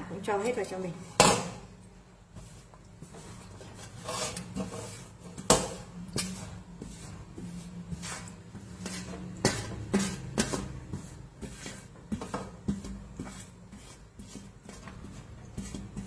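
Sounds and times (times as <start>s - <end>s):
metal spoon scraping metal bowl: 3.2s - 16.0s.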